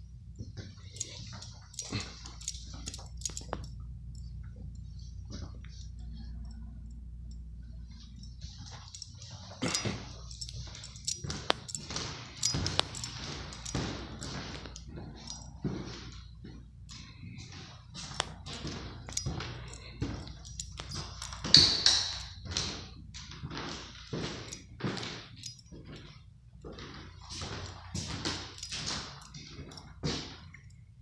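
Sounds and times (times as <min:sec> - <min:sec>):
footsteps on hardwood floor: 0:08.4 - 0:30.6.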